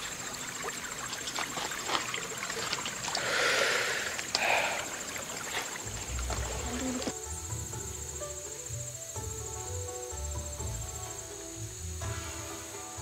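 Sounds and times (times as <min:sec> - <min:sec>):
rush of water noise: 0:00.0 - 0:07.2
water trickling onto pebbles: 0:00.0 - 0:07.2.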